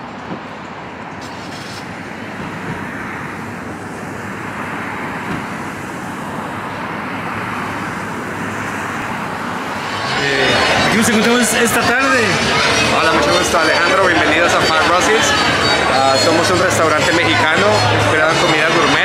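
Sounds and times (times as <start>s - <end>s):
cars passing on wet road: 0.0s - 19.0s.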